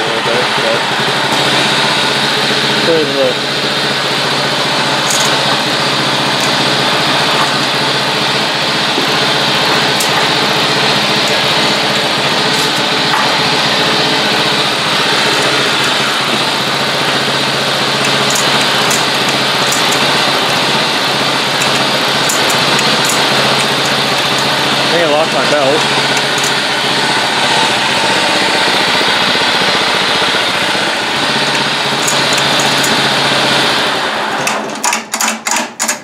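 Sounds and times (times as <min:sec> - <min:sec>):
lawn mower engine running: 0:00.0 - 0:36.0.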